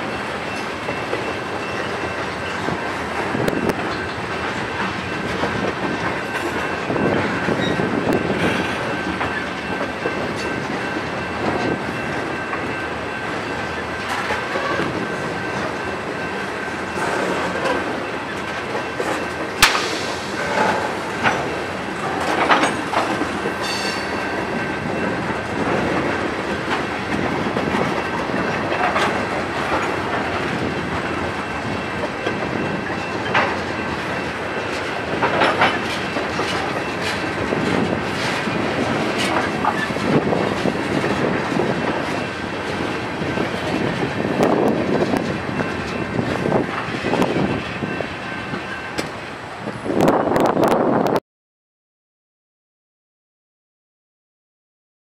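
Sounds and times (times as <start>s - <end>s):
train wheels rumbling: 0.0s - 51.1s
clickety-clack over rail joints: 0.0s - 51.2s
freight cars clanking: 14.0s - 49.2s.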